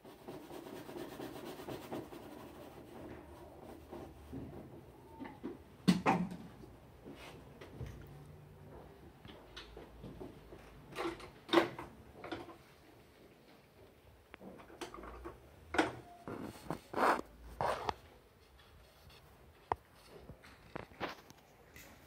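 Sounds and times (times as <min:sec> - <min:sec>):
brush scrubbing on canvas: 0:00.0 - 0:04.2.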